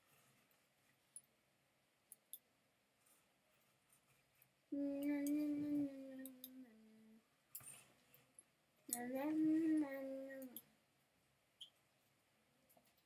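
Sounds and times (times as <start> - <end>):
person humming: 4.7 - 7.2, 8.9 - 10.7
faint clicks: 5.0 - 6.7, 7.5 - 10.7.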